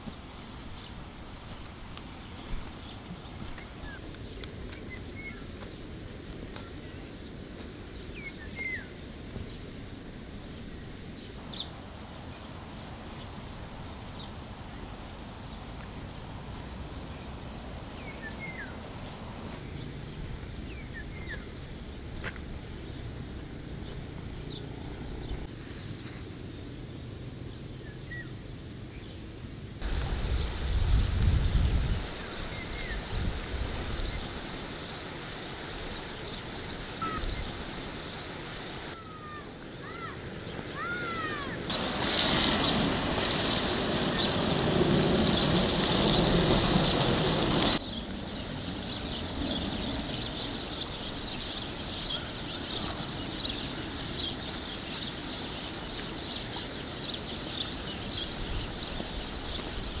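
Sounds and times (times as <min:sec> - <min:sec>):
faint fine ticking calls: 0:35.9 - 0:41.5
bird chirps: 0:37.0 - 0:37.8
even rushing noise: 0:39.8 - 0:55.7.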